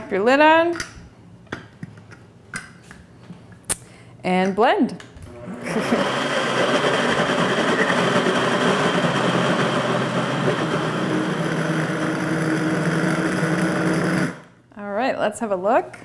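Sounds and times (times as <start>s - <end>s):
blender running at high speed: 5.4s - 14.5s.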